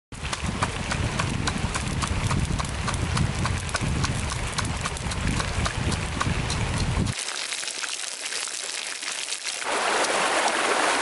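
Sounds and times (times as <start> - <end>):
pestle pounding in a mortar: 0.2 - 7.2.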